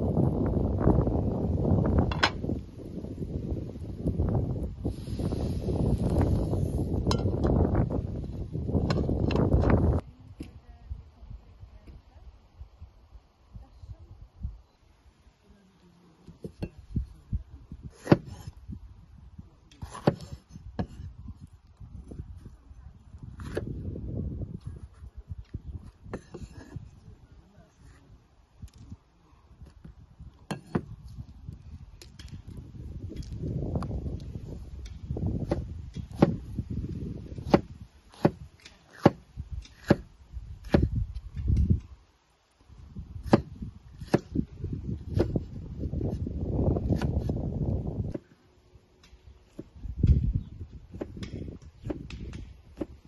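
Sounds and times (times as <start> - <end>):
knife chopping on wooden board: 18.0 - 18.5, 19.8 - 21.0, 35.4 - 36.4, 37.4 - 40.9, 43.2 - 44.3, 45.1 - 45.4, 51.0 - 53.0.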